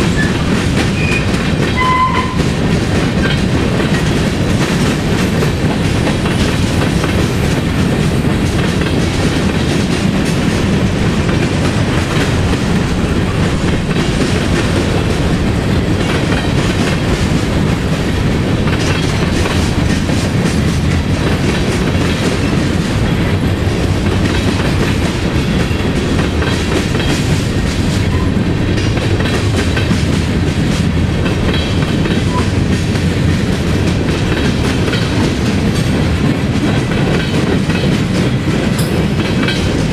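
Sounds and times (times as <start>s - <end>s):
train wheels rumbling on rails: 0.0s - 39.9s.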